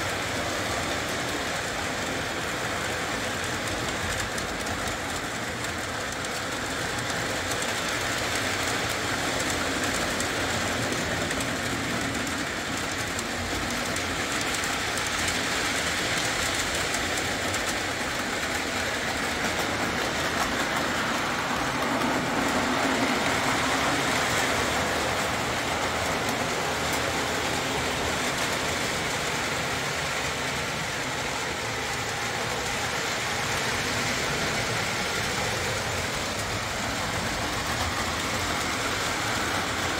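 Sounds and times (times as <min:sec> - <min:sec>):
model train rolling on track: 0:00.0 - 0:39.9.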